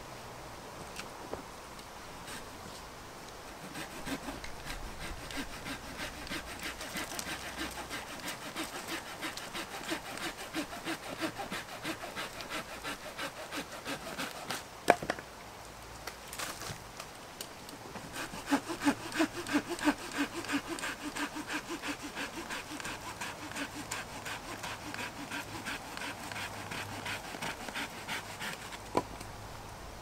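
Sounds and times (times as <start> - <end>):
hand saw cutting branch: 3.6 - 14.6, 18.0 - 29.1.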